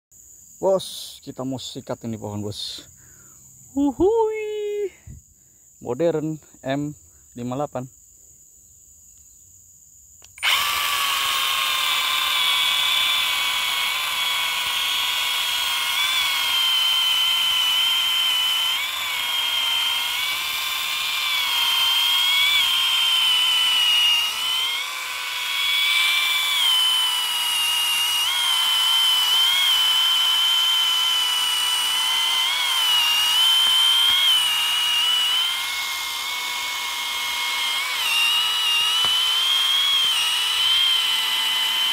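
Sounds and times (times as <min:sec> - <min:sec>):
electric chainsaw cutting wood: 0:10.4 - 0:41.9.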